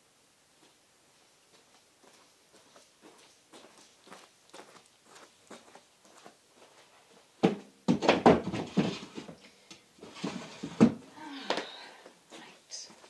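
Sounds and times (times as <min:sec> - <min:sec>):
high heel footsteps on carpet: 0:00.6 - 0:07.5
wooden drawer knocking and sliding: 0:10.1 - 0:11.0.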